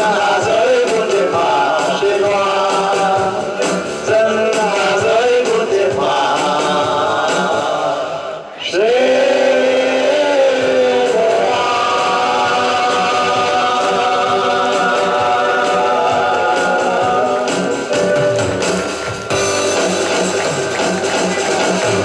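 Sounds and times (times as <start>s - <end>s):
men singing together: 0.0s - 18.5s
instrumental music: 11.1s - 22.0s.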